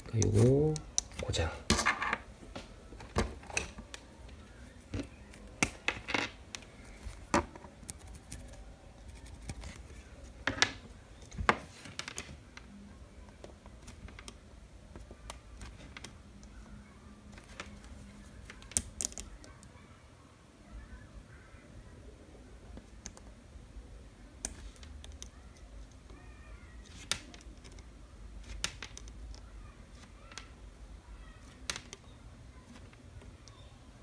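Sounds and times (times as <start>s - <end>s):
multimeter probes clicking on leds: 0.0s - 1.2s.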